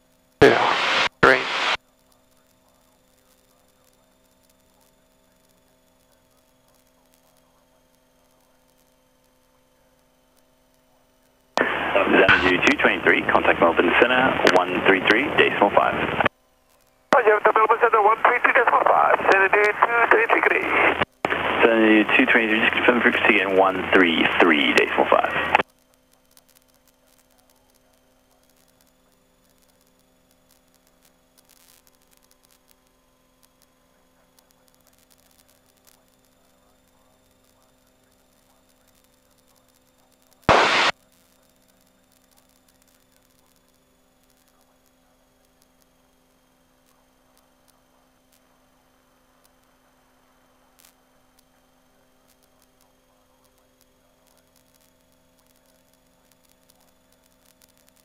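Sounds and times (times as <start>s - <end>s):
faint electrical hum: 0.0s - 58.0s
loud burst of noise: 0.4s - 1.8s, 11.6s - 16.3s, 40.5s - 40.9s.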